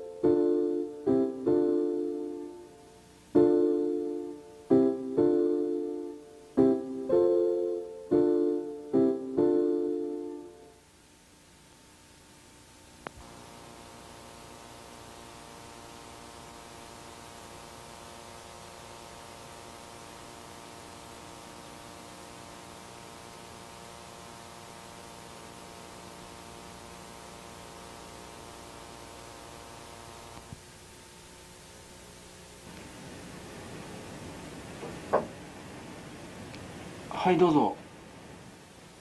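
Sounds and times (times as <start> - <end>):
steady electrical hum: 0.0 - 39.0
hiss: 32.6 - 39.0.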